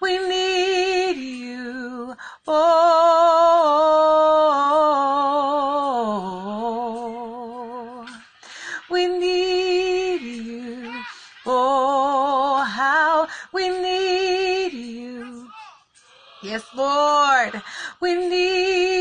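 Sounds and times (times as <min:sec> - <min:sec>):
woman singing unaccompanied: 0:00.0 - 0:15.6, 0:16.4 - 0:19.0.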